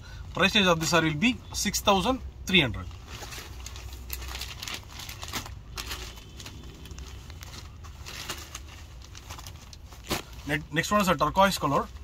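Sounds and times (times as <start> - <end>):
fabric rustling: 2.9 - 10.6.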